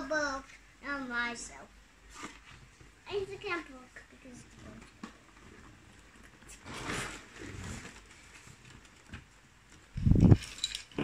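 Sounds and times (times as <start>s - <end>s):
packaging rustling and scraping: 2.1s - 2.7s, 4.5s - 9.3s.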